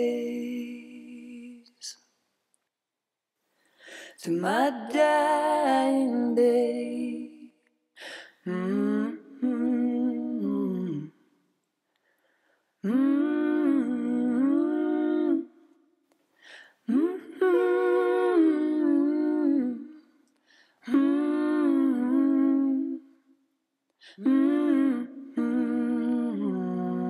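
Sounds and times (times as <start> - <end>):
person humming: 12.8 - 15.5, 20.8 - 23.0, 24.2 - 27.0.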